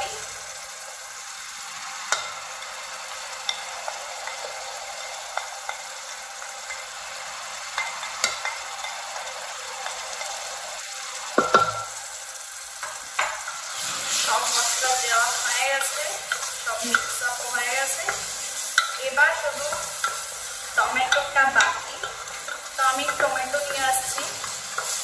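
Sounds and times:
spices sizzling in hot oil: 0:00.0 - 0:25.0
spatula clicking and scraping: 0:15.8 - 0:17.2, 0:19.7 - 0:20.4, 0:24.2 - 0:25.0.

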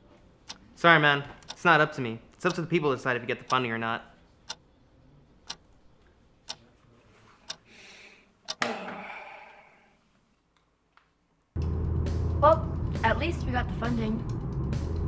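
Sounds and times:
clock ticking: 0:01.4 - 0:01.8, 0:02.4 - 0:03.7, 0:05.5 - 0:05.7.

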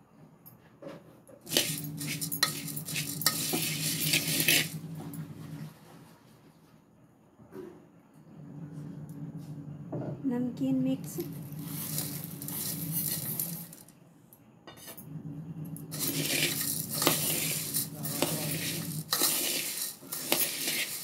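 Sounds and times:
dry snack mix pattering: 0:01.5 - 0:04.9, 0:11.2 - 0:13.8, 0:15.9 - 0:21.0
hand mixing crunchy puffed rice: 0:01.5 - 0:05.2, 0:11.2 - 0:13.8, 0:15.9 - 0:21.0.

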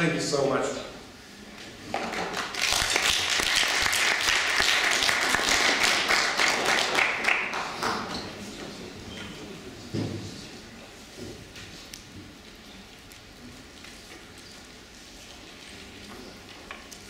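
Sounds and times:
audience applauding: 0:02.0 - 0:08.2.

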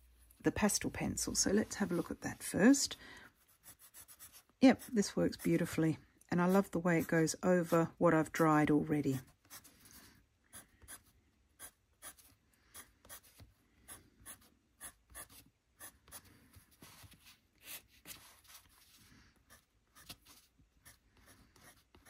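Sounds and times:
pencil scratching on paper: 0:03.4 - 0:05.8, 0:09.1 - 0:16.2, 0:16.8 - 0:22.0.

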